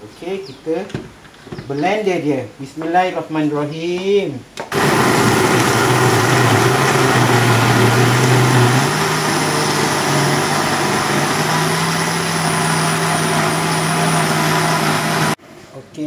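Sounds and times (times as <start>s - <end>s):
blender running: 4.7s - 15.4s.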